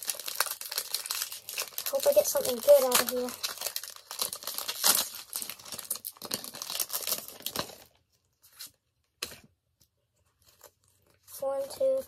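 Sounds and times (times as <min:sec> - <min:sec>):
foil wrapper tearing and crinkling: 0:00.0 - 0:08.0.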